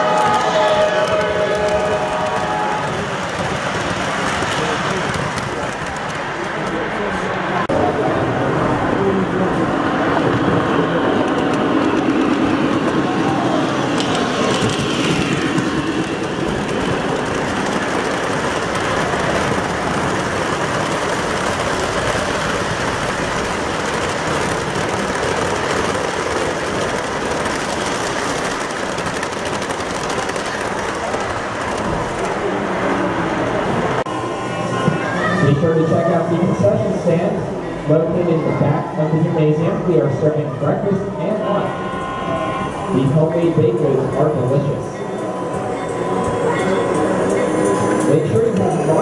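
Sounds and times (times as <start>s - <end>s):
model train wheels rumbling: 0.0s - 34.0s.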